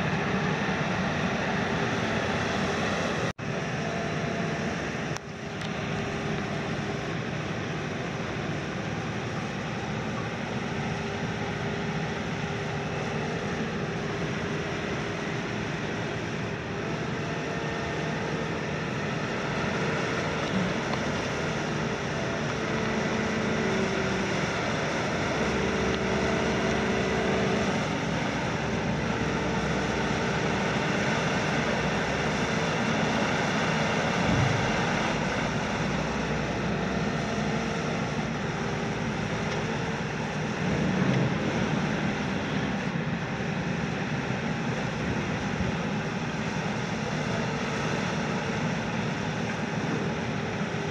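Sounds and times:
excavator engine and hydraulics droning: 0.0 - 50.9
thump: 34.2 - 34.8.

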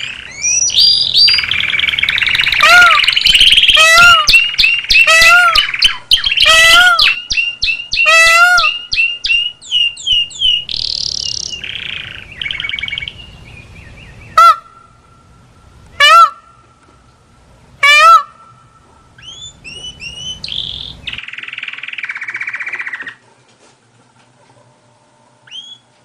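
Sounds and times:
bird chirps and chatter: 19.2 - 23.2.

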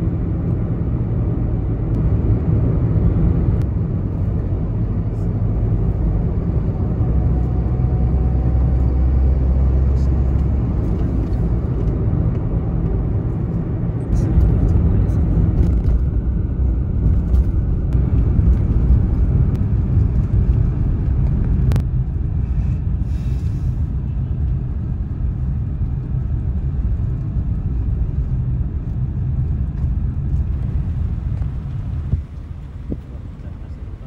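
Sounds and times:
car driving on road: 0.0 - 34.0
tyre and wind noise: 23.9 - 34.0.

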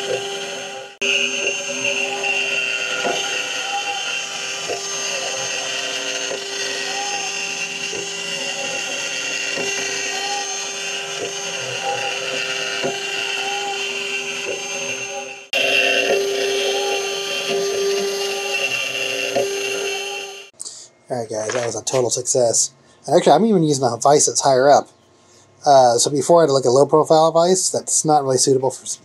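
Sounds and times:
spindle whining while milling: 0.0 - 20.5.

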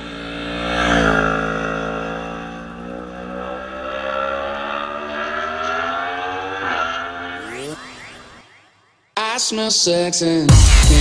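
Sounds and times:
motorcycle engine passing by: 0.0 - 8.8.

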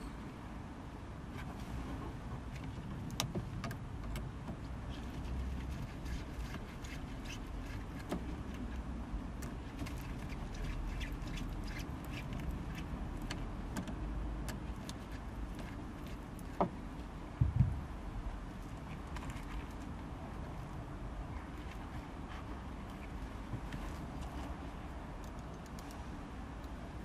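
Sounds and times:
steady low rumble: 16.8 - 27.0
small clicks and ticks: 25.2 - 26.0.

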